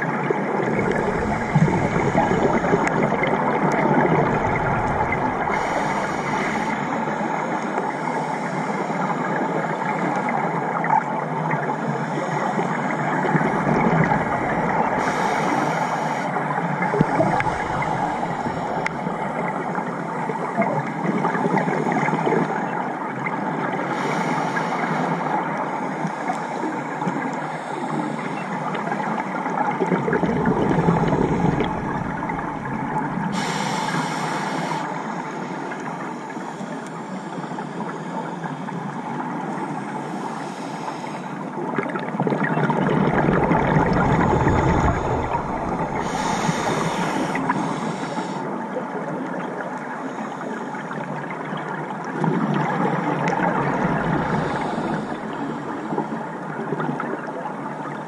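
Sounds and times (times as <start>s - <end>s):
muffled underwater noise: 0.0s - 58.0s
diver breathing through regulator: 0.7s - 7.1s, 13.6s - 19.6s, 30.0s - 35.0s, 43.2s - 48.6s, 54.1s - 55.7s.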